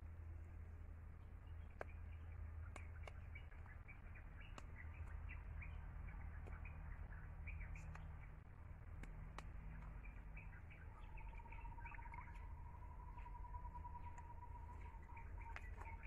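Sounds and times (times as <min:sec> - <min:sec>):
low steady hum: 0:00.0 - 0:16.0
small birds chirping: 0:00.4 - 0:16.0
sharp clicks: 0:08.8 - 0:10.2.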